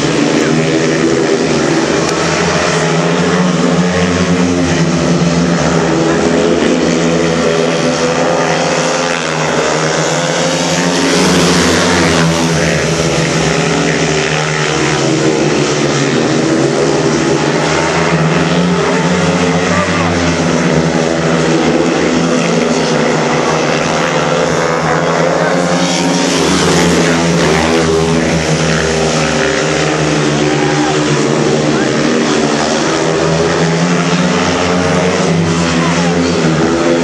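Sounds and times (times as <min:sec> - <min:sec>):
motorcycles racing at full throttle: 0:00.0 - 0:37.0.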